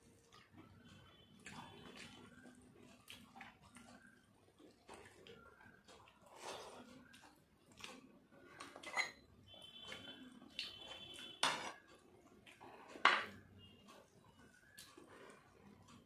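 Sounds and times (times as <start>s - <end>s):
metal bowl clinking on plate: 8.8s - 9.3s.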